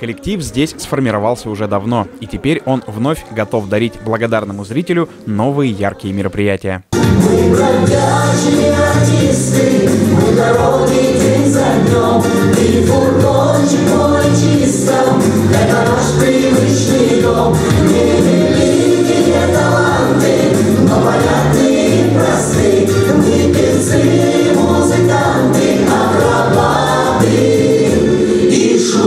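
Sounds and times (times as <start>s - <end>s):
instrumental accompaniment with bass: 6.9s - 29.0s
men and women singing together: 7.0s - 29.0s.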